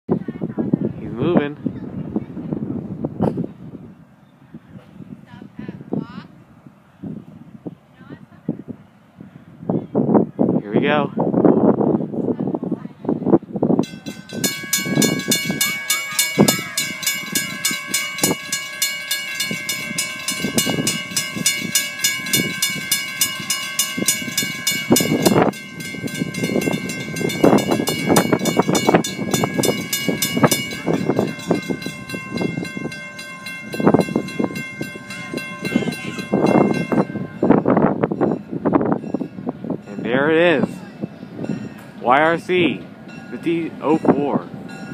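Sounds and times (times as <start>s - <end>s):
low rumbles: 13.2s - 44.9s
crossing warning bell ringing: 13.7s - 44.9s.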